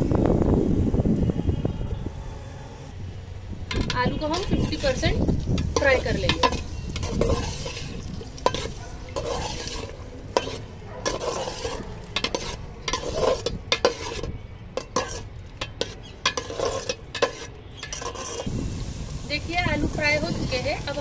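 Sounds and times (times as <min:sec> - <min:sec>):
metal spoon scraping a pot: 0:03.7 - 0:18.5
potatoes sizzling in hot oil: 0:04.0 - 0:14.1, 0:16.3 - 0:21.0.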